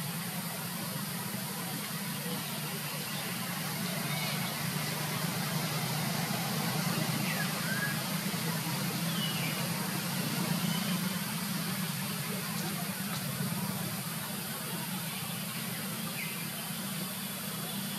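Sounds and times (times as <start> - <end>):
even hiss: 0.0 - 17.9
low engine-like drone: 0.0 - 17.9.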